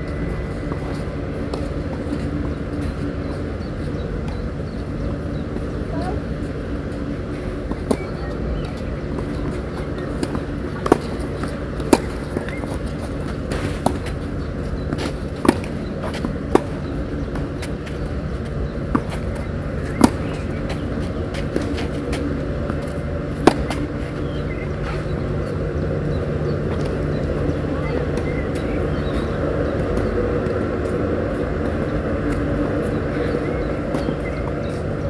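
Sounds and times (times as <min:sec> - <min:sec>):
low background hum: 0:00.0 - 0:35.0.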